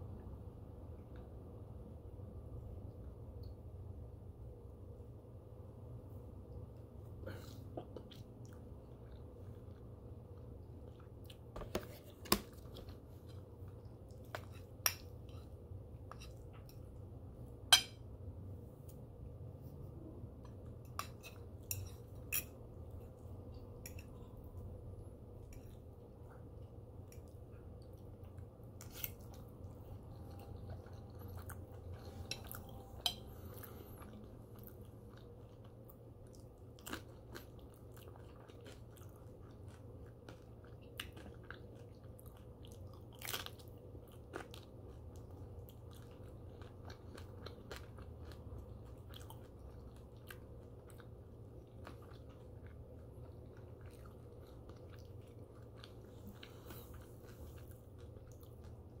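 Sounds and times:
steady low hum: 0:00.0 - 0:59.0
fork clinking on ceramic plate: 0:17.7 - 0:18.0
close-up chewing: 0:20.4 - 0:59.0.

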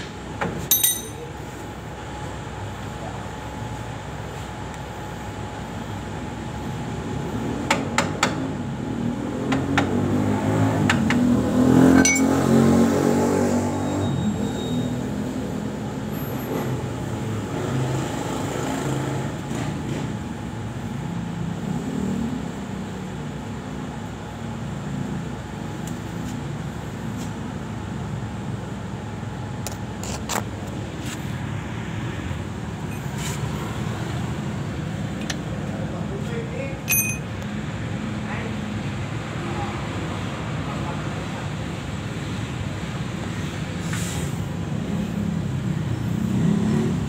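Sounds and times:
vehicle engine rumbling: 0:00.0 - 0:47.0
sharp metallic clinks: 0:00.7 - 0:01.4, 0:12.0 - 0:12.5, 0:36.8 - 0:37.4.

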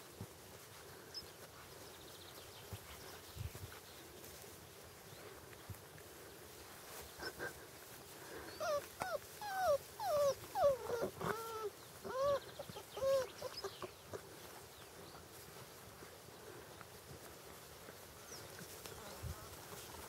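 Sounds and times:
puppies whining and whimpering: 0:08.3 - 0:14.5.

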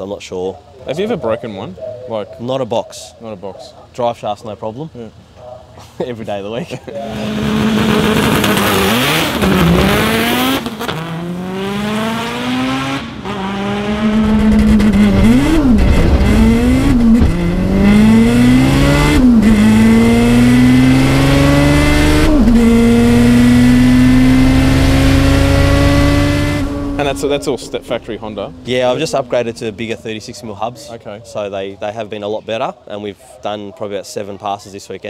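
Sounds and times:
car engine accelerating hard: 0:07.0 - 0:30.0.

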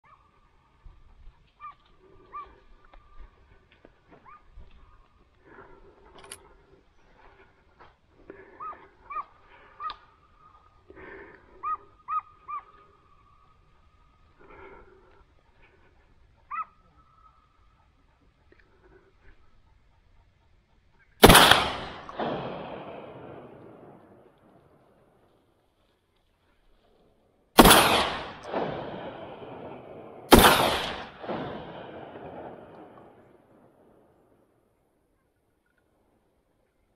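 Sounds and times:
dog yelping: 0:04.2 - 0:04.5, 0:08.6 - 0:10.0, 0:11.6 - 0:12.8, 0:16.5 - 0:16.8
shotgun shots: 0:21.2 - 0:24.1, 0:27.6 - 0:33.2
rumbling echo: 0:21.2 - 0:24.6, 0:27.6 - 0:34.2.

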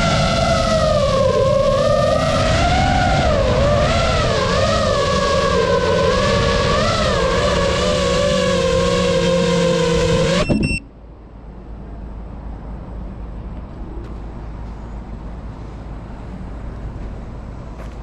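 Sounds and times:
drone motors whining: 0:00.0 - 0:10.8
low outdoor rumble: 0:00.0 - 0:18.0
brief high beeps: 0:10.4 - 0:10.9.

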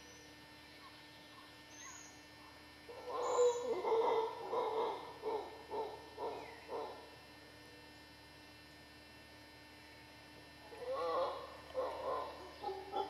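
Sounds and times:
howler monkey calling: 0:01.3 - 0:07.1, 0:10.6 - 0:13.0.

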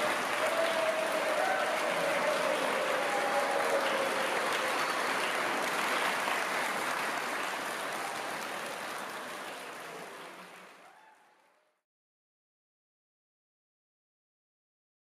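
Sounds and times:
large audience applauding: 0:00.0 - 0:11.7.

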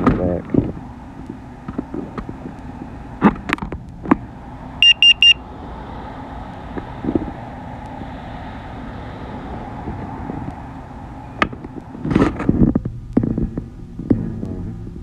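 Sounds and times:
high electronic beeps: 0:04.8 - 0:05.4.

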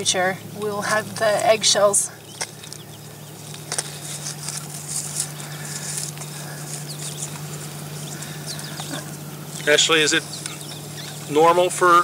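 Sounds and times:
low electrical hum: 0:00.0 - 0:12.0
dry vegetation rustling and crackling: 0:00.9 - 0:12.0
sharp clicks: 0:10.3 - 0:11.1.

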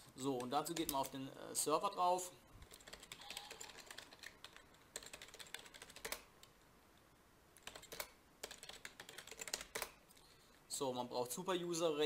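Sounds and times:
computer keyboard typing: 0:00.4 - 0:01.1, 0:02.6 - 0:06.5, 0:07.6 - 0:10.0.

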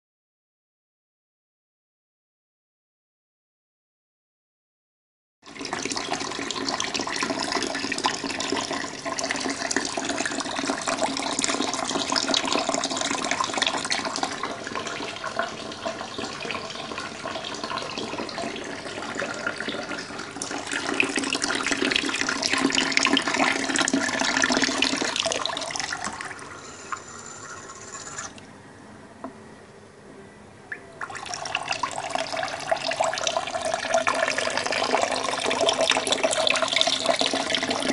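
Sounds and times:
water gushing and splashing: 0:05.5 - 0:26.5, 0:31.0 - 0:37.9.

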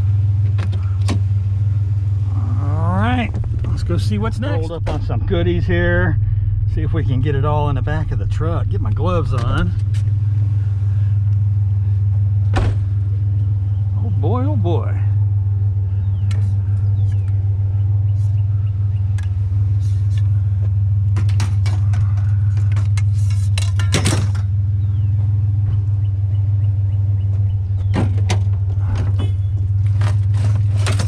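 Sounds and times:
truck engine idling: 0:00.0 - 0:31.0
scrap metal clanks and knocks: 0:21.1 - 0:24.5, 0:27.8 - 0:31.0.

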